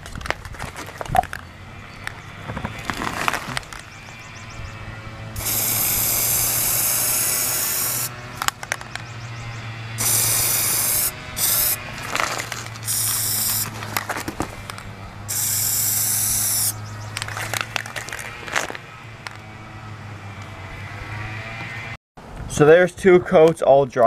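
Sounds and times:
aerosol can spraying: 5.4s - 8.1s, 10.0s - 11.8s, 12.8s - 13.8s, 15.3s - 16.8s.

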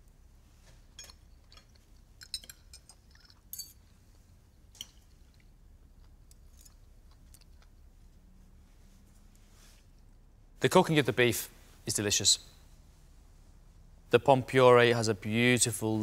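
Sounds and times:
forks clinking on a plate: 1.0s - 3.8s.

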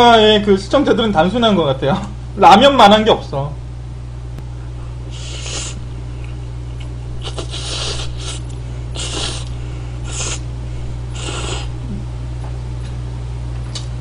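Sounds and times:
low electrical hum: 0.0s - 14.0s
person slurping noodles: 5.1s - 5.8s, 7.2s - 10.5s, 11.1s - 11.8s.

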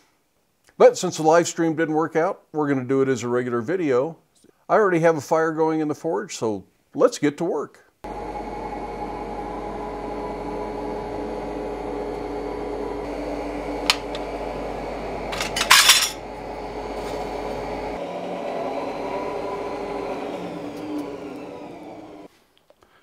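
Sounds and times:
steady mechanical hum: 8.1s - 22.3s
metallic clatter: 15.3s - 16.2s
steel clinking: 15.3s - 16.2s.

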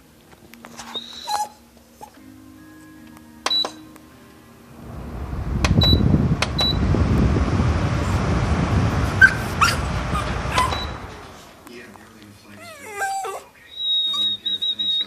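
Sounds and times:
fan airflow rushing: 4.6s - 12.6s.

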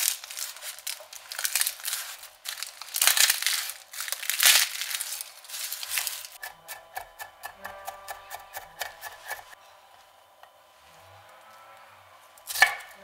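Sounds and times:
garlic skins crackling: 0.0s - 9.6s.

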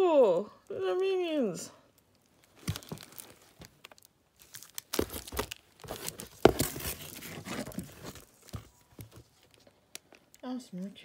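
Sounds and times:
packaging crinkling and rustling: 2.0s - 10.4s.

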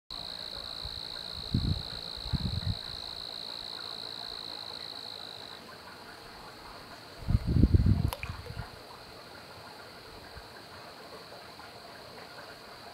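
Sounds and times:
insect trilling: 0.1s - 5.8s.

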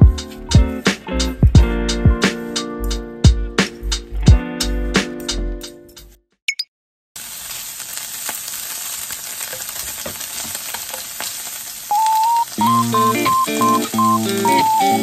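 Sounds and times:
background music with melody: 0.0s - 6.2s, 12.6s - 15.0s
food sizzling in a frying pan: 7.2s - 15.0s.

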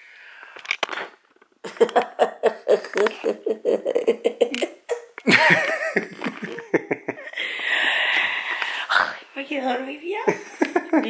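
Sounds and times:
people laughing: 1.7s - 7.8s, 10.3s - 11.0s.

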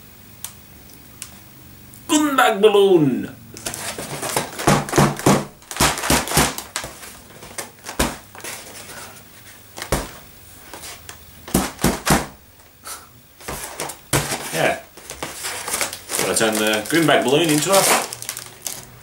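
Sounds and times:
foil bag crinkling and tapping: 3.6s - 12.8s, 13.4s - 19.0s.

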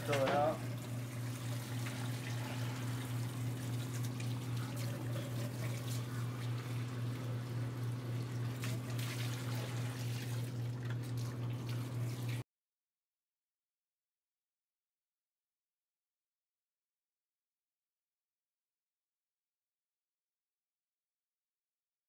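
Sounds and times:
steady low hum: 0.0s - 12.4s
water running from faucet and splashing: 0.0s - 12.4s.

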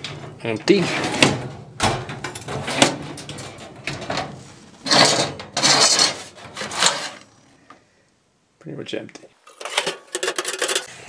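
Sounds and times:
metal drawer sliding rattle: 0.0s - 7.2s
metal drawers knocking shut: 0.0s - 7.2s.

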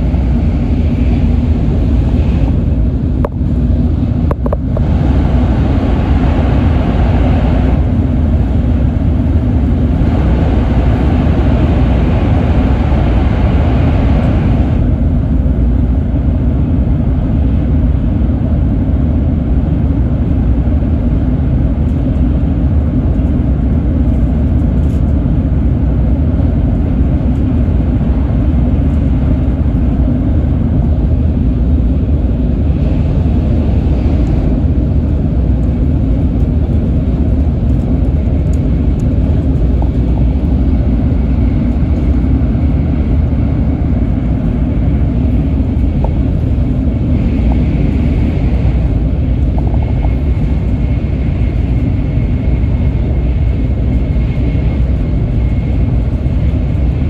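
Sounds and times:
train cabin rumble: 0.0s - 57.0s.

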